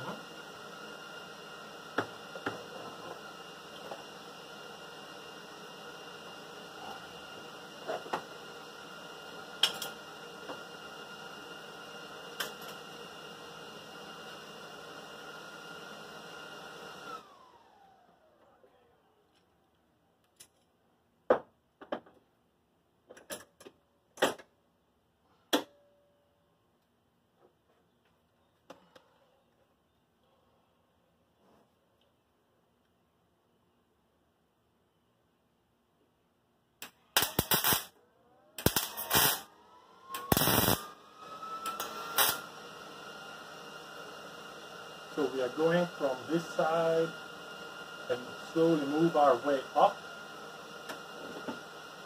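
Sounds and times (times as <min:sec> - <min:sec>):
welder crackling and sizzling: 0:09.6 - 0:10.1, 0:12.2 - 0:12.8, 0:36.8 - 0:37.9, 0:38.6 - 0:39.5, 0:40.1 - 0:41.0, 0:41.6 - 0:42.5, 0:45.0 - 0:51.6.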